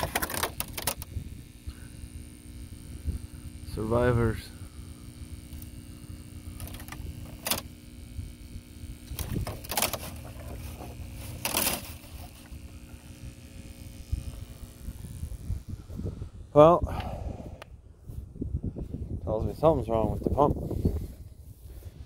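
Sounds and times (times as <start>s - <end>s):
wind rumble on microphone: 0.0s - 7.2s, 7.8s - 11.2s, 12.8s - 22.0s
submersible pump humming: 0.0s - 18.8s.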